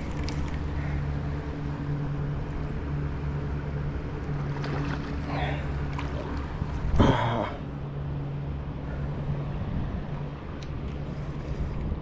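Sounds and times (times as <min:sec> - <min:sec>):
engine running with low hum: 0:00.0 - 0:12.0.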